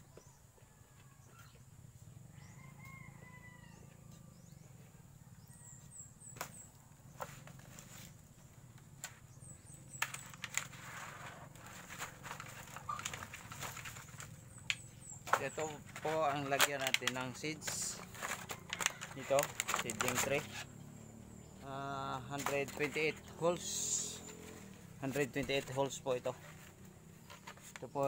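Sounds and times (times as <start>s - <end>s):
distant rooster crowing: 0.2s - 6.2s, 17.5s - 19.6s
plastic tray rustling and clicking: 9.9s - 20.5s, 22.4s - 23.4s.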